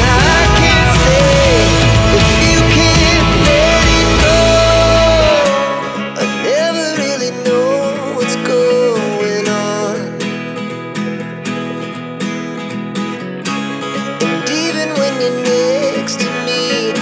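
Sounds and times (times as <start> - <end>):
wavering lead melody: 0.0 - 6.5
strummed acoustic guitar: 0.0 - 17.0.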